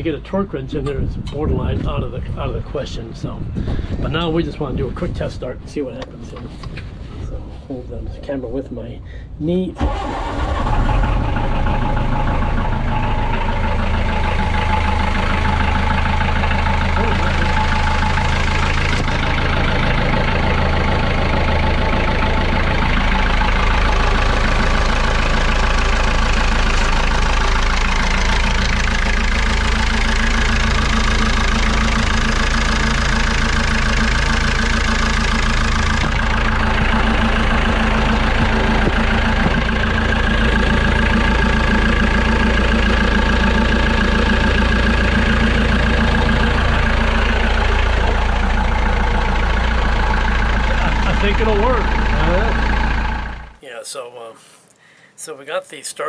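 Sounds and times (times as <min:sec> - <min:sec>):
diesel engine idling: 0:00.0 - 0:53.6.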